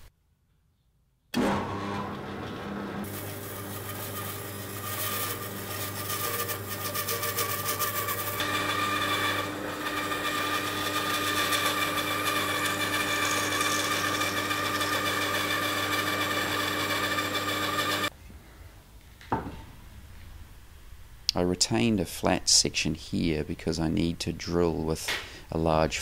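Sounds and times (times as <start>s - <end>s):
bandsaw cutting wood: 1.4s - 18.1s.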